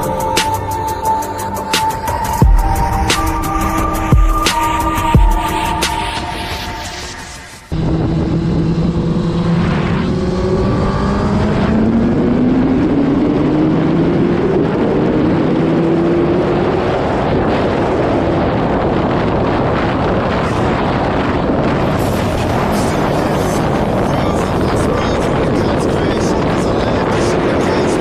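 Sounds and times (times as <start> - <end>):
wind rush over microphone: 2.1 - 28.0
motorcycle engine accelerating: 7.7 - 28.0.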